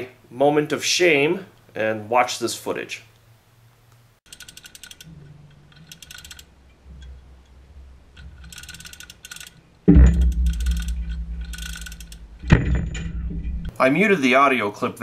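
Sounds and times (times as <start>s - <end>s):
chain hoist ratchet clicking: 4.3s - 6.5s, 8.2s - 9.6s, 10.2s - 12.2s
low rumbling: 6.5s - 8.5s, 9.9s - 13.8s
loud low thump: 9.9s - 13.7s.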